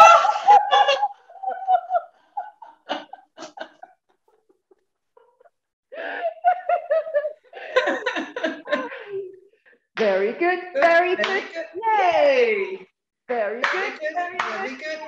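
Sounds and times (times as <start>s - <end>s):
women laughing: 0.0s - 9.5s.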